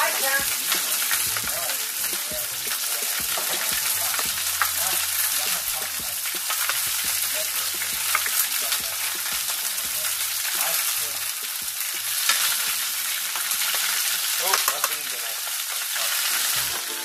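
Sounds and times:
chicken sizzling in a skillet: 0.0 - 17.0.

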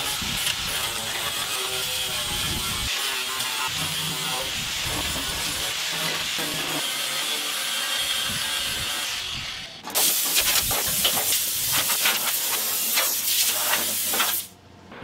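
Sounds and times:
sandblaster hissing: 8.4 - 14.5.

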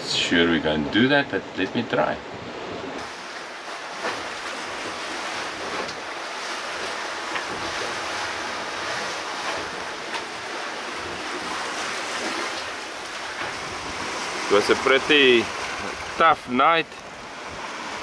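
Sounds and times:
wind and sea rushing: 0.0 - 18.0
wind buffeting microphone: 4.6 - 16.2.

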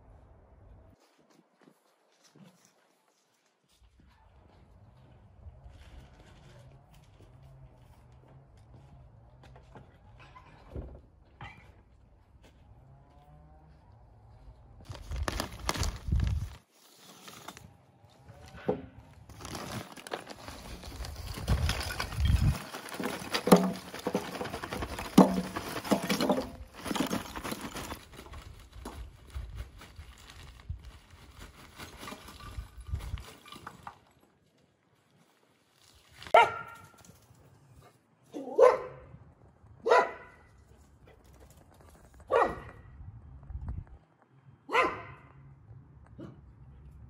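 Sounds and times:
plastic bag crinkling: 14.9 - 16.6, 19.3 - 32.4.

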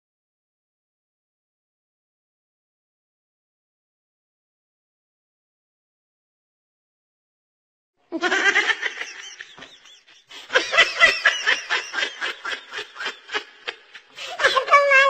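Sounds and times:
people laughing hard: 8.1 - 15.0.

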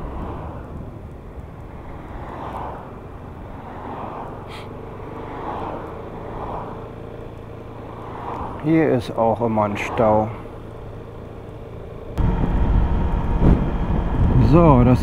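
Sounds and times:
wind noise on microphone: 0.0 - 2.8, 12.2 - 15.0.

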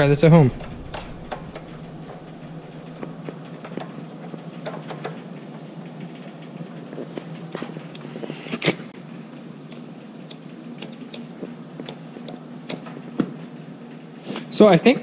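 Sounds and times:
electric sparks clicking and crackling: 0.0 - 8.9
steady low hum: 0.0 - 15.0.

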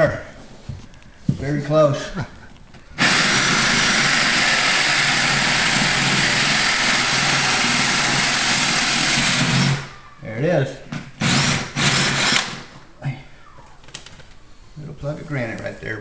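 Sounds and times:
drill grinding through stone: 3.0 - 9.9, 11.2 - 12.6.

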